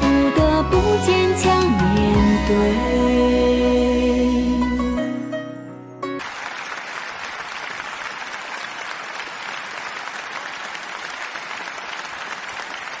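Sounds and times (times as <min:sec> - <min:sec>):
large audience applauding: 0:06.2 - 0:13.0.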